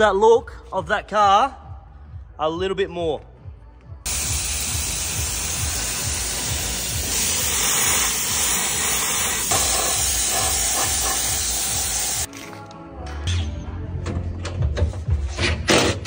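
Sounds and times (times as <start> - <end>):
spray gun hissing: 4.1 - 12.3.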